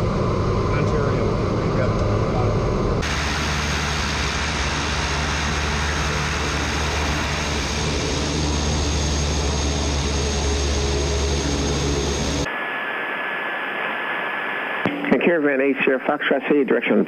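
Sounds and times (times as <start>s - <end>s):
turboprop engine running: 0.0s - 12.5s.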